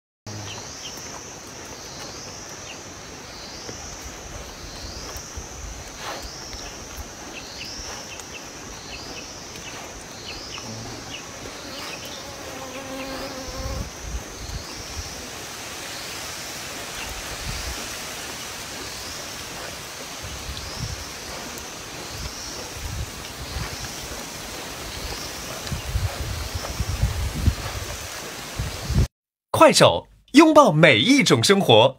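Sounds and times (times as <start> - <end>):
steady background hiss: 0.3 - 25.7
insect high chirp: 0.3 - 29.0.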